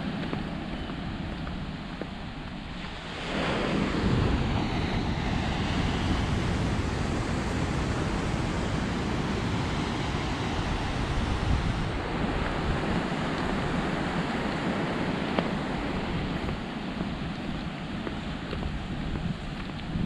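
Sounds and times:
wind rumbling on microphone: 0:00.0 - 0:20.0
surf breaking on beach: 0:02.8 - 0:18.4.

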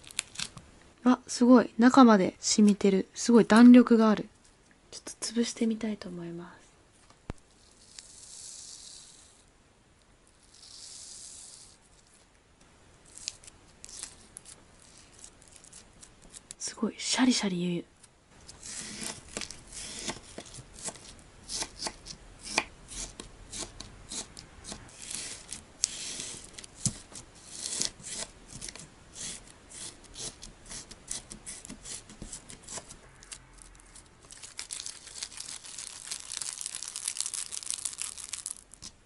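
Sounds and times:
slime sponge squeezed crackling: 0:33.2 - 0:38.9.

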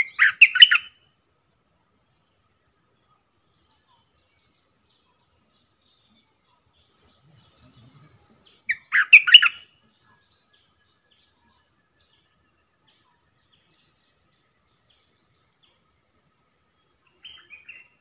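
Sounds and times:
bird singing bubbling whistles: 0:00.0 - 0:00.9, 0:07.0 - 0:09.6
high thin bird twittering: 0:00.0 - 0:01.0, 0:05.9 - 0:11.6, 0:17.0 - 0:18.0.

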